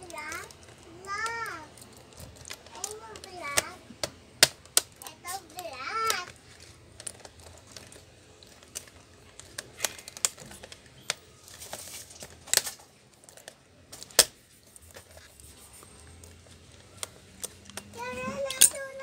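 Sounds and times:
plastic clicks and snaps: 1.2 - 6.4, 16.7 - 18.8.

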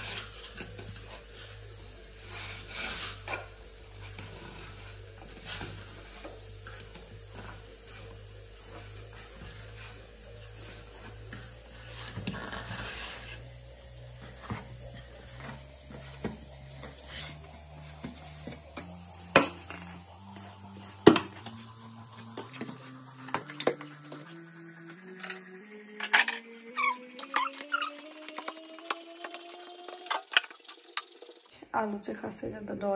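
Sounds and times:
faint low rising tone: 8.6 - 31.7.

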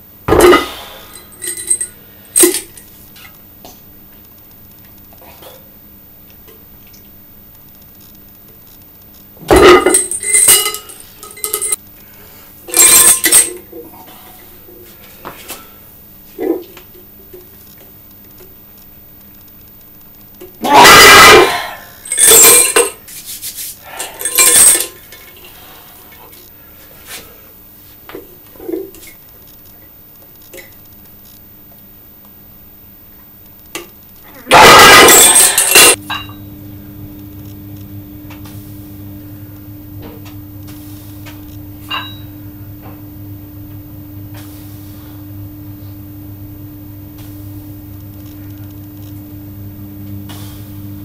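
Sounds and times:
pin and plate rattling: 9.8 - 11.8.

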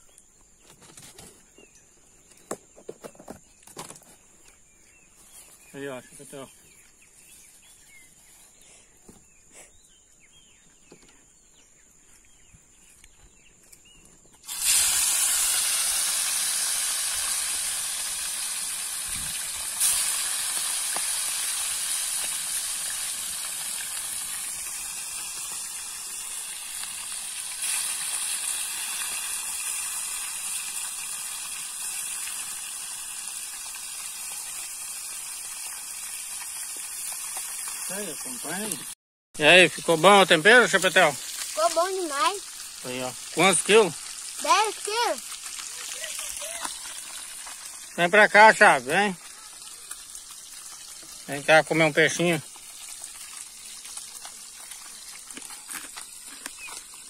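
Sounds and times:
oil popping: 14.4 - 38.8, 39.7 - 57.0
fish sizzling in hot oil: 14.4 - 57.0.

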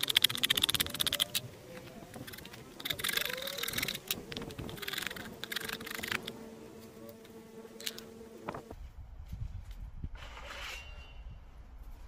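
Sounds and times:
flying insect buzzing: 2.2 - 8.7.

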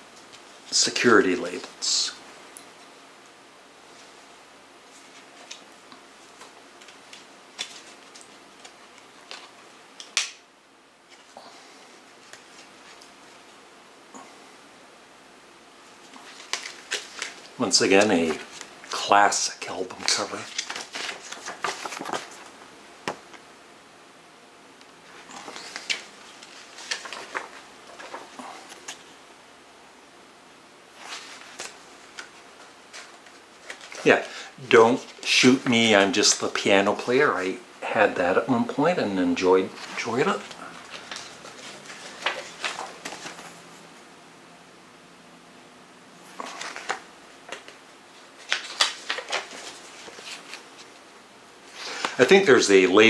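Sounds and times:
paper booklet rustling: 6.2 - 10.2, 16.0 - 23.3, 25.1 - 29.2, 30.9 - 37.0, 39.4 - 43.8, 46.3 - 51.1.

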